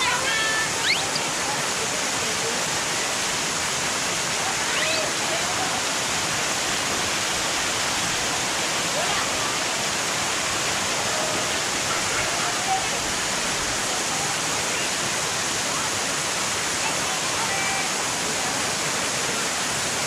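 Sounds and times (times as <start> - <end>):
waterfall rushing: 0.0 - 20.0.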